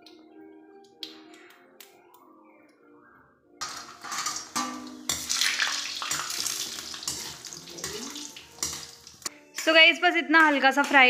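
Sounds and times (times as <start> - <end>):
ladle scraping and clinking pan: 3.6 - 9.1
loud sizzling frying: 3.6 - 9.8.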